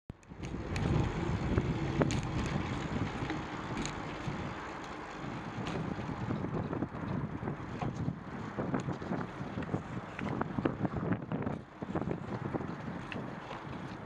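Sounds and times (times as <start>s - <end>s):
wind buffeting microphone: 0.1s - 14.0s
light clicks from bicycle: 0.2s - 8.1s.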